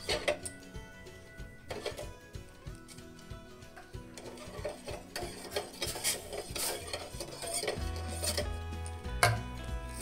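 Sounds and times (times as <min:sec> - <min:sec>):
spoon scraping steel bowl: 0:04.2 - 0:08.6.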